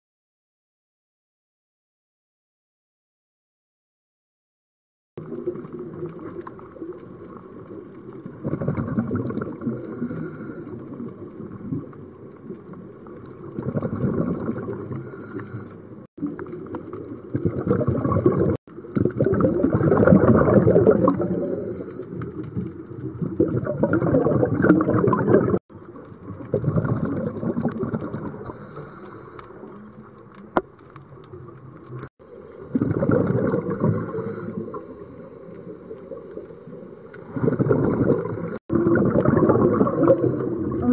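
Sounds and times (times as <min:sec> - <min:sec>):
exhaled bubbles rushing: 0:05.2 - 0:09.8, 0:13.4 - 0:15.0, 0:16.2 - 0:21.4, 0:22.2 - 0:28.5, 0:31.1 - 0:35.2, 0:36.0 - 0:40.9
regulator hissing: 0:33.7 - 0:34.7.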